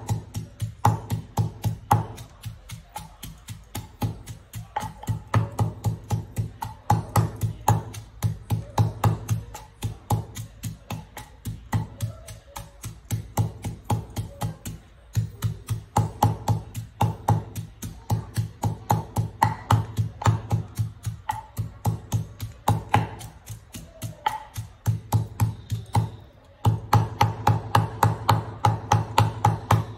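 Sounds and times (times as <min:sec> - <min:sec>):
wooden pestle pounding in mortar: 0:00.0 - 0:29.9.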